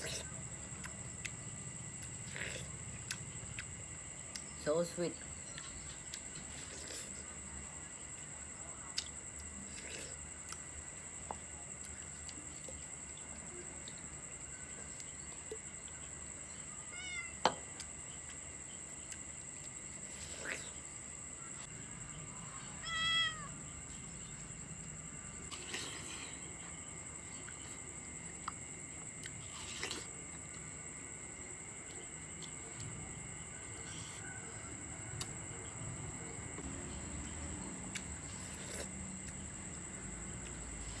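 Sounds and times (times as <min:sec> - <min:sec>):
cat meowing: 0:16.8 - 0:17.4, 0:22.7 - 0:23.6.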